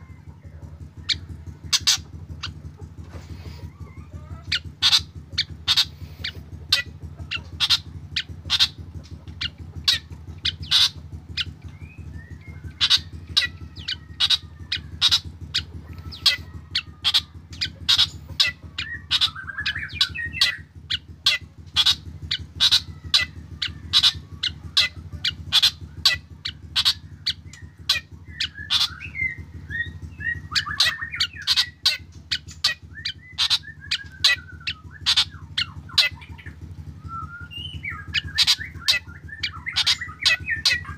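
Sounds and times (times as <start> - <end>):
bird calling sharp notes: 0.0 - 40.9
steady low hum: 0.0 - 40.9
bird warbling phrase: 12.4 - 20.7, 37.5 - 40.9.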